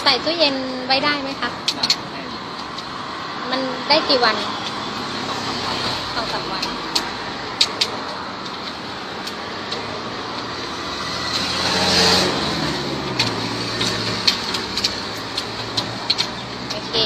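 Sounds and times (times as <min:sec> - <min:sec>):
road traffic noise: 0:00.0 - 0:17.0
vehicle passing: 0:00.0 - 0:17.0
sharp clicks: 0:05.8 - 0:16.8.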